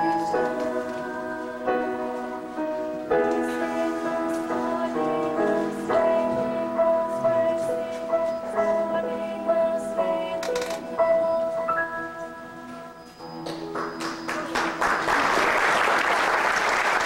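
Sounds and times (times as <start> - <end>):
girls' choir singing chords: 0.0 - 13.0
piano accompaniment: 0.0 - 17.0.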